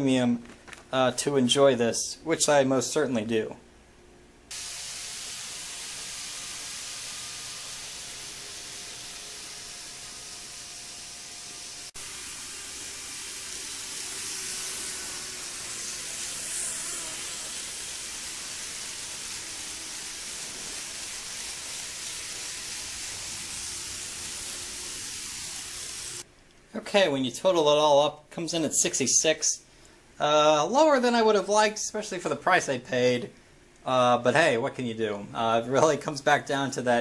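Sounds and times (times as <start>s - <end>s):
model train whirring: 4.5s - 26.2s.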